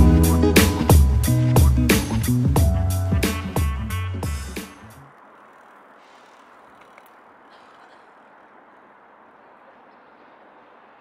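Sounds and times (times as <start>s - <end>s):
faint outdoor ambience hiss: 4.5s - 11.0s.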